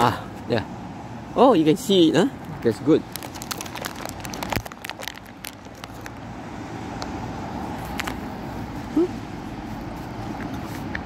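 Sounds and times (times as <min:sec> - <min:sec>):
road traffic: 0:00.0 - 0:11.0
sharp clicks and crackles: 0:03.0 - 0:06.3, 0:07.8 - 0:08.2.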